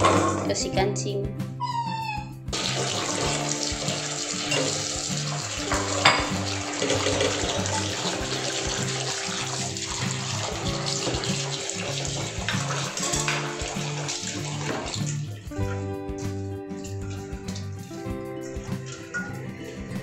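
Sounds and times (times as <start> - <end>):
background music: 0.0 - 20.0
tap running into steel bowl: 2.6 - 15.3
hand stirring dates in water: 2.6 - 20.0.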